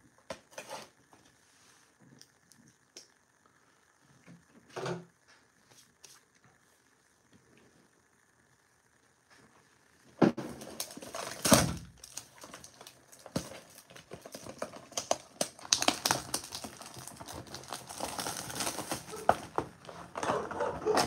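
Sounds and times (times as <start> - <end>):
plastic wrap crinkling and ripping: 10.4 - 21.0.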